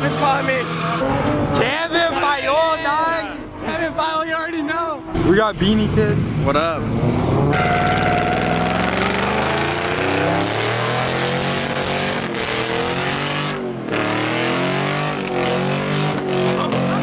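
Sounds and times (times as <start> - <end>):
car engine revving hard: 0.0 - 1.7, 6.2 - 17.0.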